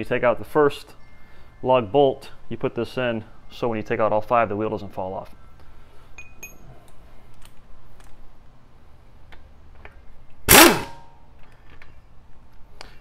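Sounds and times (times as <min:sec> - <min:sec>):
impact wrench: 0:10.5 - 0:11.1.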